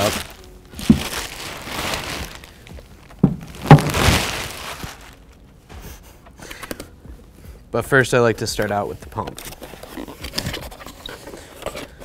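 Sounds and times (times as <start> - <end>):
plastic bag crinkling: 0.0 - 5.5
bucket knocking on table: 3.2 - 4.0.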